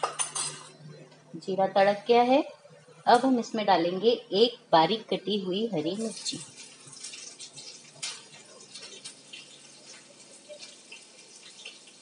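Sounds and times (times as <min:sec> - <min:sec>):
chili sizzling in hot oil: 0:05.7 - 0:12.0
oil crackles and pops: 0:06.1 - 0:12.0.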